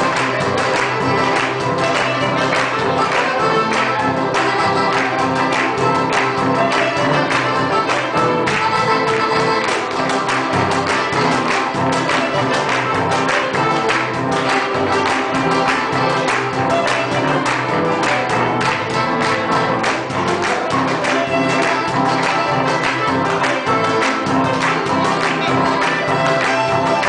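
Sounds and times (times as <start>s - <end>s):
folk dance music: 0.0s - 27.0s.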